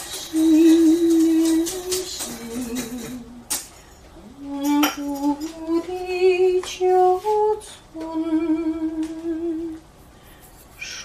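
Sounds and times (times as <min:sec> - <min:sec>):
person humming a slow tune: 0:04.3 - 0:09.8.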